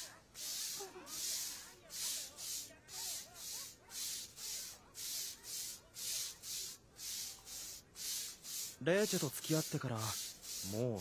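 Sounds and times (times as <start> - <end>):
brush scrubbing wet tiled floor: 0.0 - 11.0.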